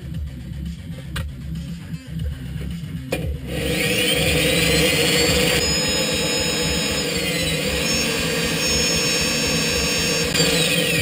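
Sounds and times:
drill press whining: 3.5s - 11.0s.

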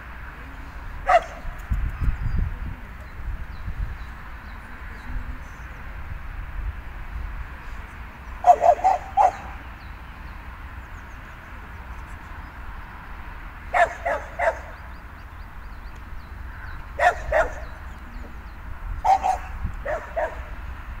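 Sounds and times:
steady low rumble: 0.0s - 21.0s
dog barking: 1.0s - 1.5s, 8.4s - 9.6s, 13.7s - 14.8s, 17.0s - 17.8s, 19.0s - 20.5s.

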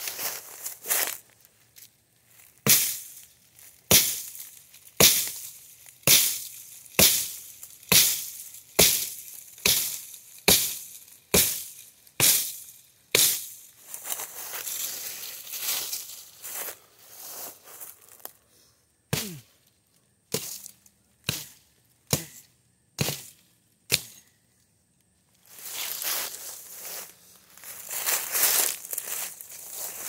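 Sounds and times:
axe chopping tree trunk: 2.6s - 3.1s, 3.9s - 4.2s, 5.0s - 5.4s, 6.0s - 13.5s, 19.1s - 19.4s, 21.2s - 22.4s, 23.0s - 24.2s.

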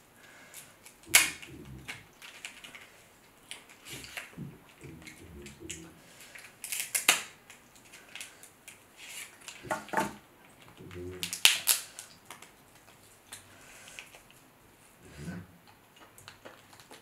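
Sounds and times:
shears cracking crab shell: 0.5s - 2.8s, 5.0s - 10.2s, 10.8s - 14.3s.

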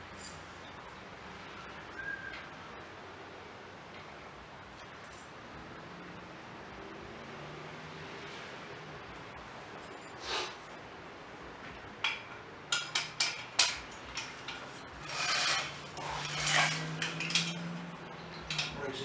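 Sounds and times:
metal scraping on metal: 13.2s - 17.8s.

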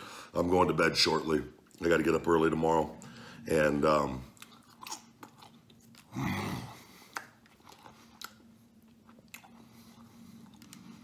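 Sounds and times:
man chewing: 4.2s - 11.0s
wet mouth clicks: 7.0s - 8.5s.

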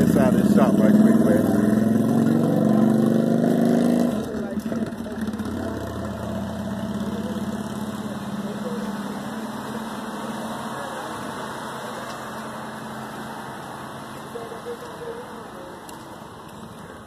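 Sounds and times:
car engine idling: 4.1s - 17.0s.

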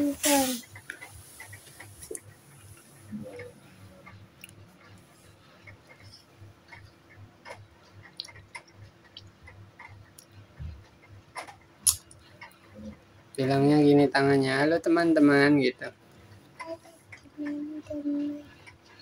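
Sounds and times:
child licking and biting ice cream: 11.8s - 12.0s.

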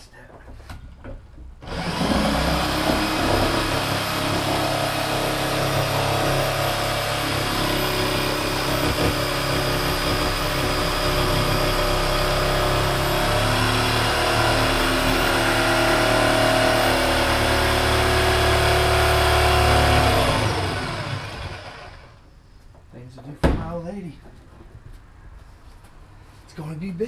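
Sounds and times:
power tool cutting metal drum: 1.6s - 22.2s.

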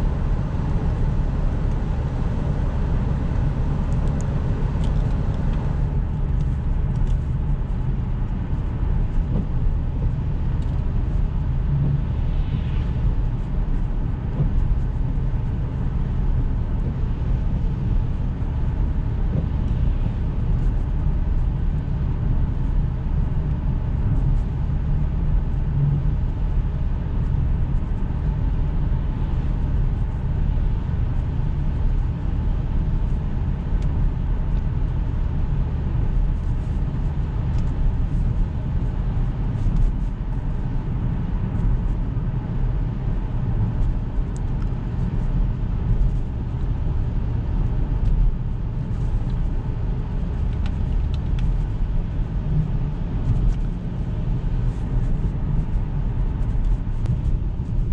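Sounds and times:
car engine hum from cabin: 0.0s - 57.9s.

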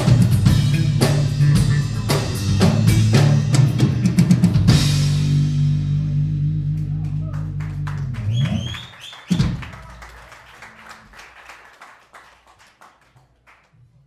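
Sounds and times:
drums and cymbals: 0.0s - 6.4s
electric bass: 0.0s - 9.7s.

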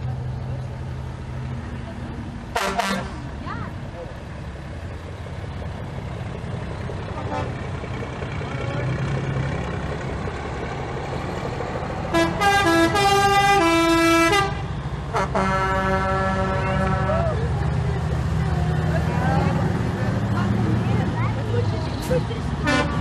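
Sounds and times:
diesel truck engines rumbling: 0.0s - 23.0s
musical truck air horn: 2.5s - 3.1s, 12.1s - 17.2s, 22.6s - 23.0s.

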